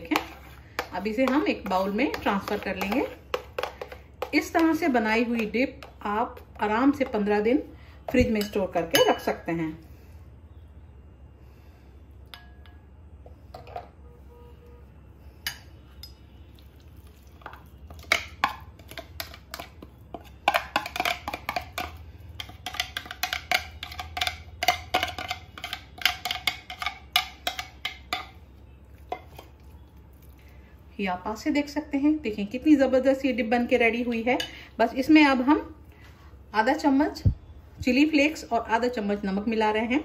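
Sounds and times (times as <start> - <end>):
plastic spoon scraping and knocking bowl: 0.0 - 7.2, 17.5 - 28.3.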